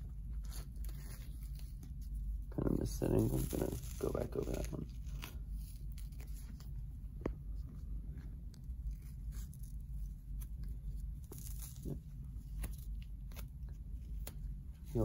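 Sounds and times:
low room hum: 0:00.0 - 0:15.0
tape crackling as it unwinds: 0:00.1 - 0:06.9, 0:08.4 - 0:15.0.

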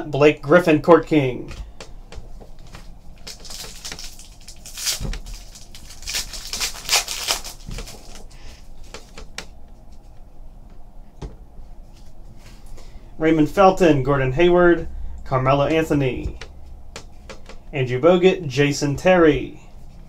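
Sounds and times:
cards being shuffled: 0:02.7 - 0:09.5
plastic wrapper crinkling and tearing: 0:03.2 - 0:08.4.

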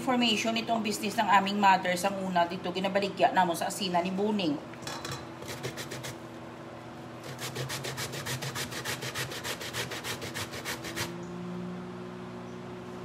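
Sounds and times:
root grated on metal grater: 0:05.4 - 0:06.2, 0:07.2 - 0:11.2.

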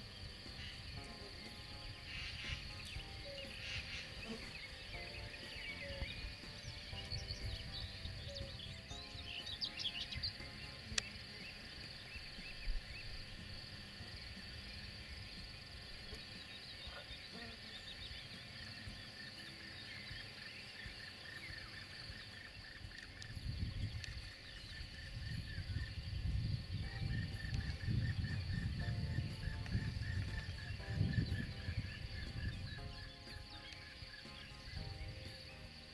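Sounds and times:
bird calls: 0:00.0 - 0:35.9
insects chirring: 0:00.0 - 0:35.9
wind rumble on microphone: 0:22.0 - 0:35.3.

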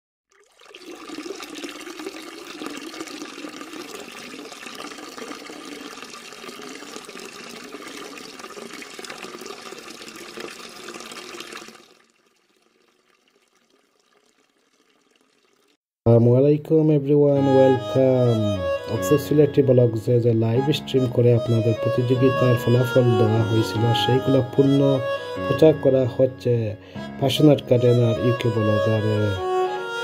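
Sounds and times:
liquid pouring into a glass: 0:00.3 - 0:15.8.

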